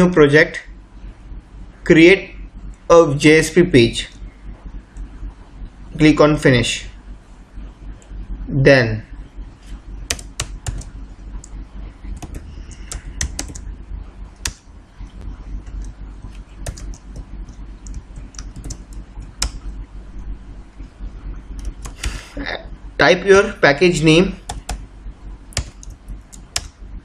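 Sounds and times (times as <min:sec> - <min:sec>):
low steady hum: 0:00.0 - 0:27.0
keyboard typing: 0:10.0 - 0:13.8, 0:14.4 - 0:19.7, 0:21.5 - 0:22.2, 0:24.4 - 0:24.8, 0:25.5 - 0:26.8.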